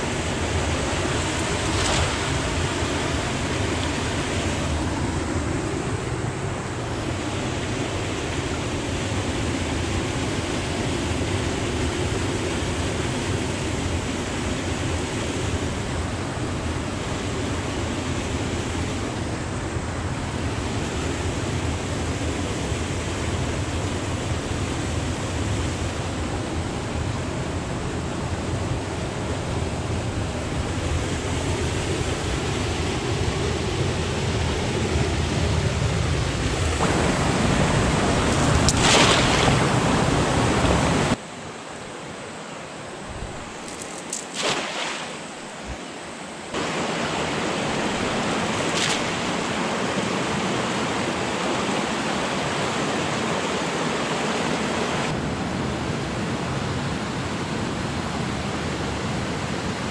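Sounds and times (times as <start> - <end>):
river water rushing over rocks: 0.0 - 59.9
cast net splashing onto water: 38.2 - 40.0, 43.6 - 45.6, 48.4 - 49.5.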